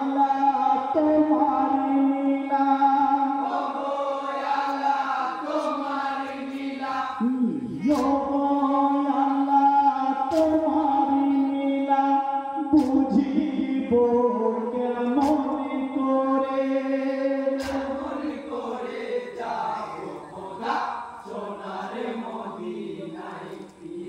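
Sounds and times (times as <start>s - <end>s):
men singing an elegy: 0.0s - 24.0s
sharp rhythmic beat: 7.2s - 8.6s, 10.3s - 11.1s, 12.6s - 16.1s, 17.5s - 21.9s.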